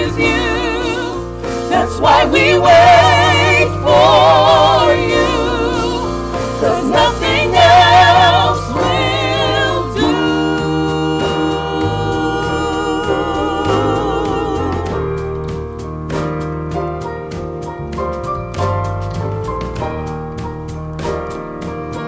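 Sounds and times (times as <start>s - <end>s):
gospel choir singing in harmony: 0.0s - 15.8s
keyboard bass and drums band: 0.0s - 22.0s.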